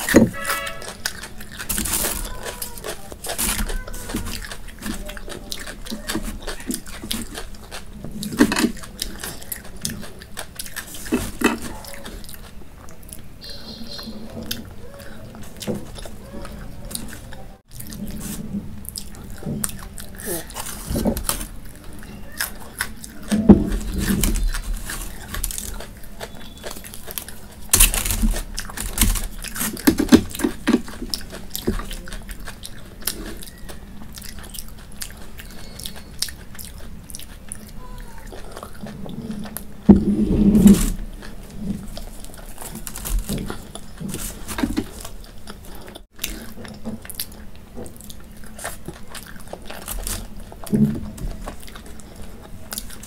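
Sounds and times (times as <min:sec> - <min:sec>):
person chewing: 0:00.0 - 0:53.0.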